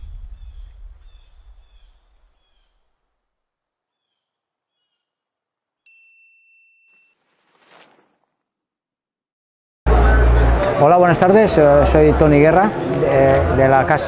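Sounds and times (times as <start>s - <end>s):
low rumble: 0.0s - 2.4s
faint bird chirps: 0.3s - 2.9s, 3.9s - 5.2s.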